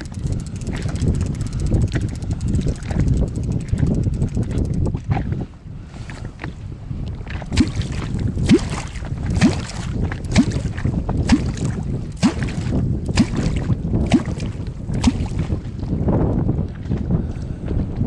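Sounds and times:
low wind rumble: 0.0 - 18.0
deep plops in water: 7.5 - 15.6.

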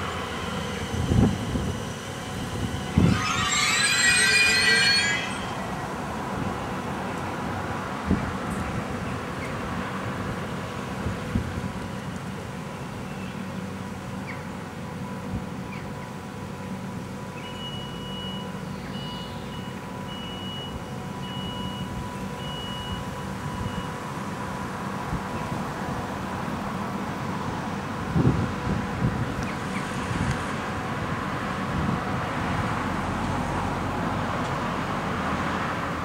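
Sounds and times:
electric train humming: 0.0 - 17.3
high broken beeping: 2.6 - 6.4.

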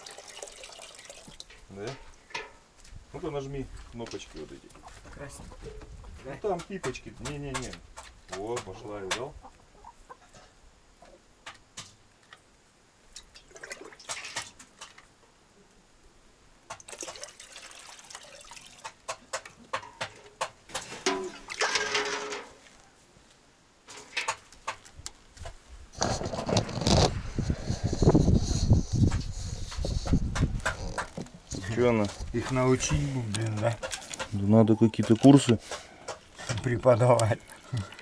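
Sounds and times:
water gurgling and trickling: 0.0 - 1.6, 13.4 - 14.4, 16.8 - 19.0.

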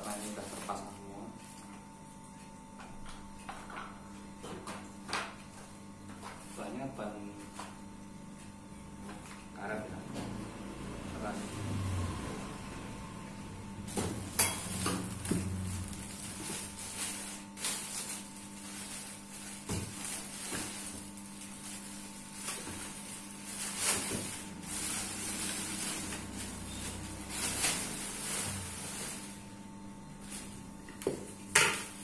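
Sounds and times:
plastic bags crinkling: 0.0 - 1.0, 14.2 - 29.6.

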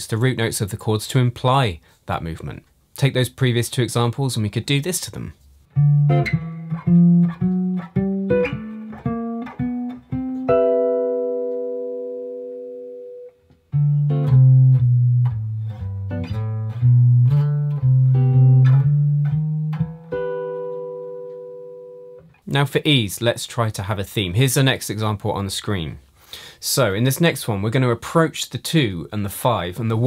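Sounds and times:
clean electric guitar jazz comping: 5.4 - 22.6.

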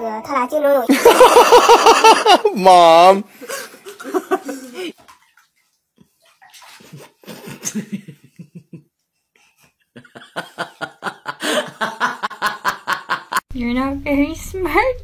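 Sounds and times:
person laughing: 3.4 - 4.9, 7.0 - 8.8, 9.9 - 13.4.

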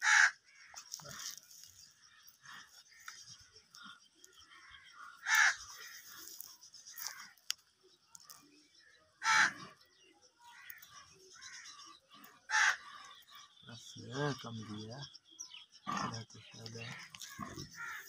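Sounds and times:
crows cawing: 0.0 - 7.6, 9.2 - 9.8, 10.4 - 14.9, 15.9 - 18.0.

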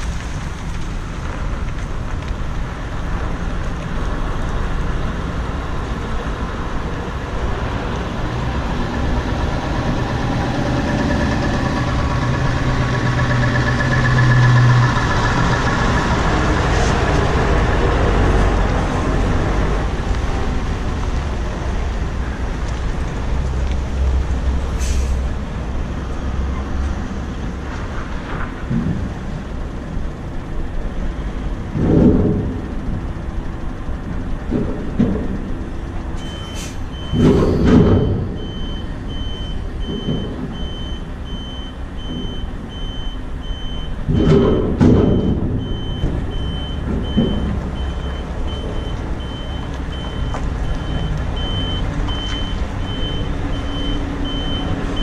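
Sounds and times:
diesel truck engine running: 0.0 - 55.0
truck reversing alarm beeping: 9.5 - 18.6, 36.1 - 55.0
air brake hisses: 24.8 - 25.3, 36.2 - 36.9.

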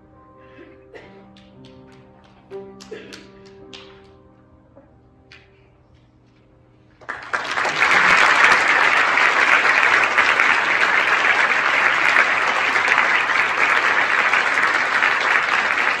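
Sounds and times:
piano chord: 0.0 - 7.2
audience applauding: 7.0 - 16.0.

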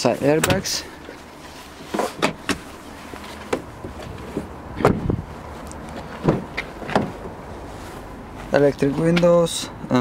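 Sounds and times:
knocks and thumps: 3.4 - 5.2, 6.1 - 7.2.

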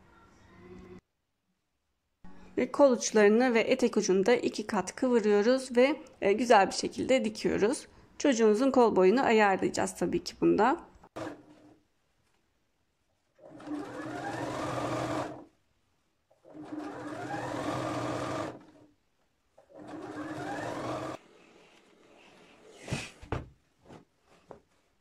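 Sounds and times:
sewing machine motor whining: 13.4 - 15.4, 16.5 - 18.7, 19.7 - 21.2.

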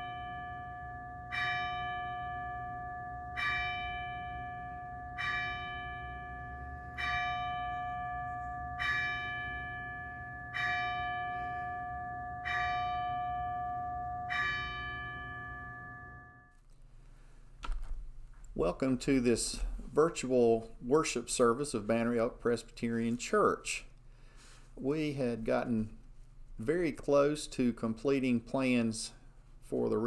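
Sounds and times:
church bell tolling: 0.0 - 16.5.

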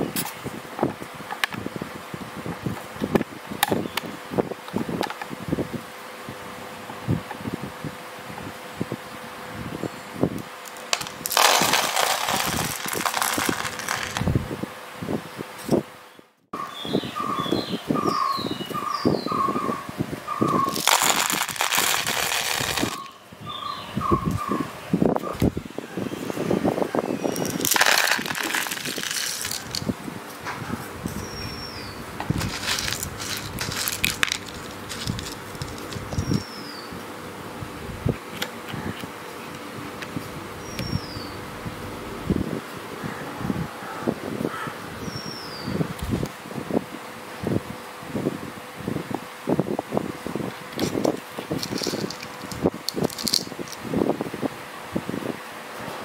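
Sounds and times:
light clicks of granules: 10.6 - 14.2, 20.6 - 23.1, 27.4 - 29.9, 32.2 - 36.5, 50.8 - 53.8
granules rattling into metal bunker: 10.7 - 14.3, 20.6 - 23.1, 27.3 - 29.9, 32.3 - 36.4, 50.8 - 53.8.

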